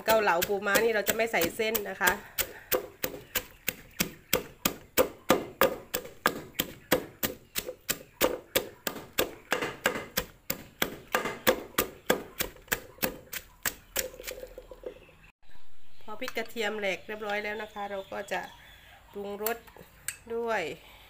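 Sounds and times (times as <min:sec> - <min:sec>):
pestle pounding in a mortar: 0:00.0 - 0:14.4.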